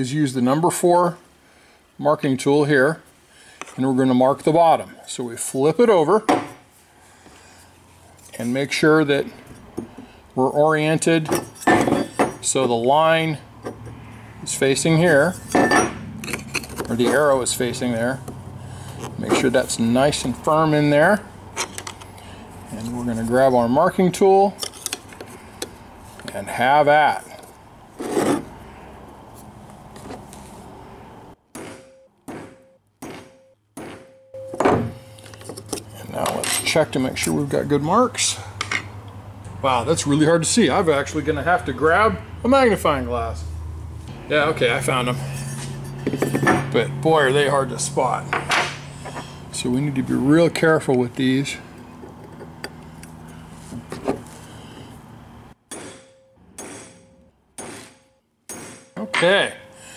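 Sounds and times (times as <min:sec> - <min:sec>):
steel punch striking metal: 0:31.5 - 0:35.0, 0:55.7 - 0:59.7
steel ringing: 0:55.7 - 0:59.9.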